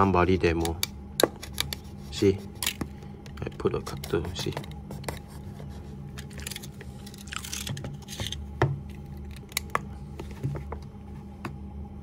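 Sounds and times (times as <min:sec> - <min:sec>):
knife scraping hard plastic: 0:01.2 - 0:08.4.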